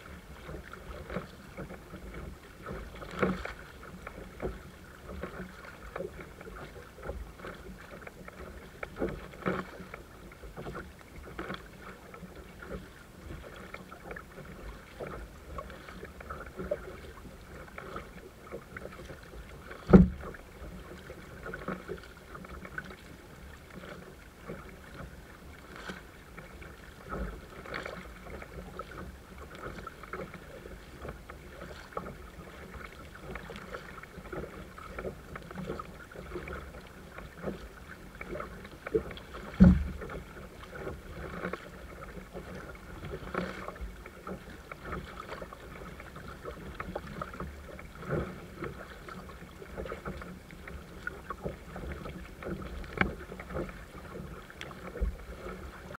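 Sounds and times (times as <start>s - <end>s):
paddle splashing in water: 0.0s - 56.0s
water washing along hull: 0.0s - 56.0s.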